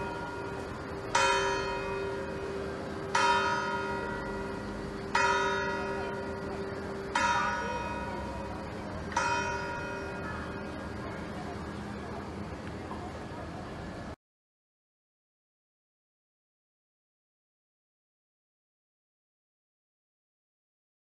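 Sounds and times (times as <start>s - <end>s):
tower bell ringing: 0.0s - 11.8s.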